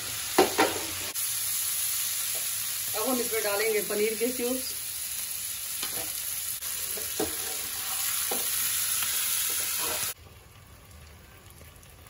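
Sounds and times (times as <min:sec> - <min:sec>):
vegetables sizzling in oil: 0:00.0 - 0:11.3
spatula scraping a pan: 0:06.8 - 0:08.6, 0:09.4 - 0:10.2.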